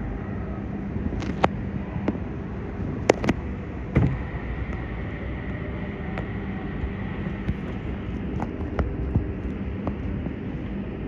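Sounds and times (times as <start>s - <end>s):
steady hum: 0.0s - 11.0s
sharp clicks and knocks: 3.0s - 4.9s.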